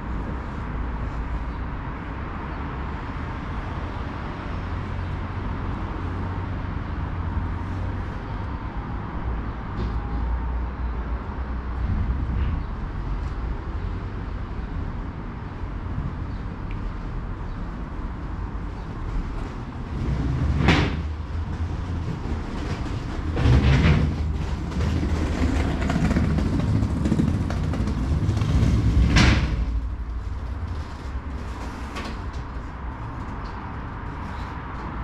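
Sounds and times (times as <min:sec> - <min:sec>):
train rumbling on tracks: 0:00.0 - 0:35.0
train clatter: 0:18.6 - 0:35.0.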